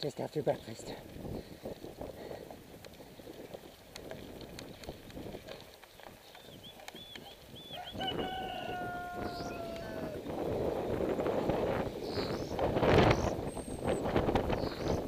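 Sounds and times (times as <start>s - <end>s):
bicycle tyres on gravel: 0.0s - 15.0s
rooster crowing: 7.7s - 10.3s.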